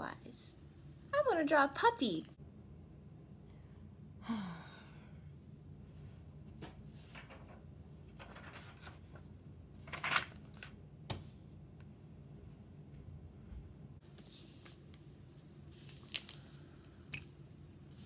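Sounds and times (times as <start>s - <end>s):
falling vocal sigh: 4.2s - 5.2s
rustling and handling noises: 5.9s - 11.6s, 14.0s - 16.8s.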